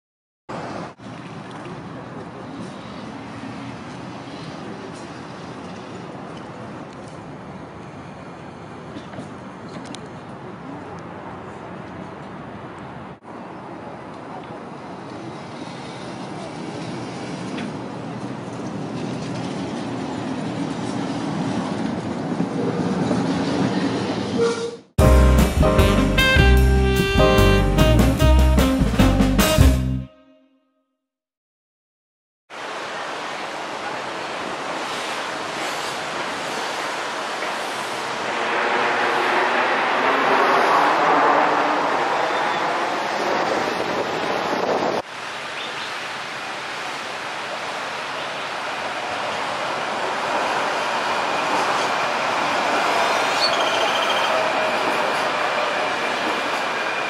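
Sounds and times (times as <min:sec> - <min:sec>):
wind: 0:00.5 - 0:25.6, 0:32.5 - 0:57.0
tram rumbling on rails: 0:00.5 - 0:29.6, 0:33.4 - 0:45.1, 0:46.5 - 0:57.0
street noise: 0:00.5 - 0:30.0, 0:32.5 - 0:57.0
wheel squeal: 0:52.9 - 0:57.0.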